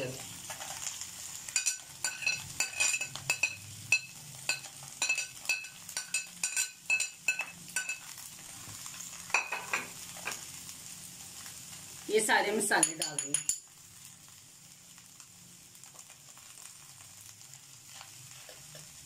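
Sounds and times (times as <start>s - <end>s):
faint sizzle of frying: 0.0s - 19.0s
spoon clinking and scraping pan: 1.5s - 8.3s, 9.3s - 10.4s, 12.7s - 13.7s.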